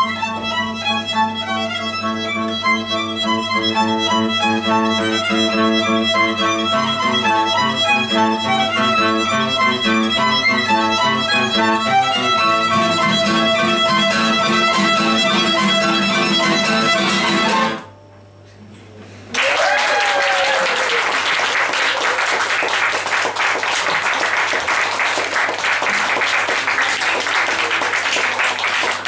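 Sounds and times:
violin clarinet and guitar folk music: 0:00.0 - 0:17.9
audience applauding: 0:19.3 - 0:29.0.

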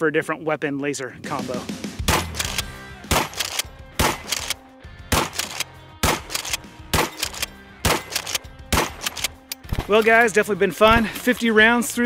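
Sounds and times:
shotgun pump racking: 0:02.1 - 0:04.6, 0:05.2 - 0:10.2
shotgun shots: 0:02.1 - 0:10.0.

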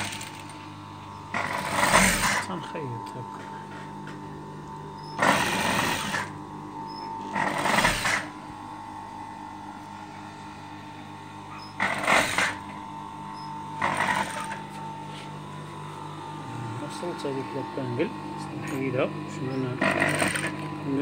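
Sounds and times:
sewing machine stitching: 0:00.0 - 0:00.5, 0:01.3 - 0:02.5, 0:05.2 - 0:06.3, 0:07.3 - 0:08.3, 0:11.8 - 0:12.6, 0:13.8 - 0:14.6, 0:19.8 - 0:20.6
steady machine hum: 0:00.0 - 0:21.0.

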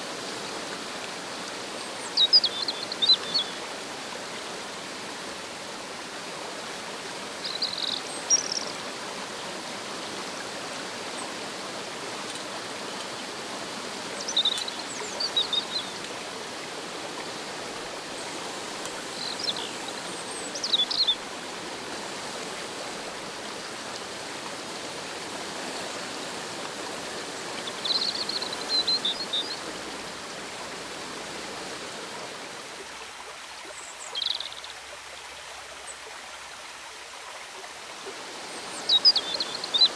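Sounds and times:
stream and waterfall rushing: 0:00.0 - 0:39.9.

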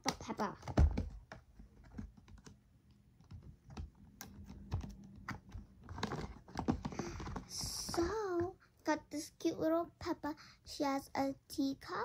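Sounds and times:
toy packaging clicks and taps: 0:00.0 - 0:02.6, 0:03.2 - 0:08.5.

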